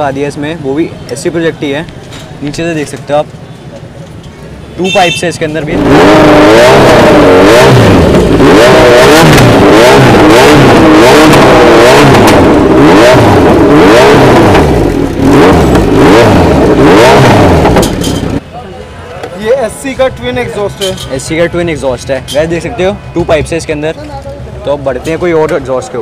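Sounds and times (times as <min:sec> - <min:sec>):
motorcycle engine revving: 0:05.6 - 0:18.4.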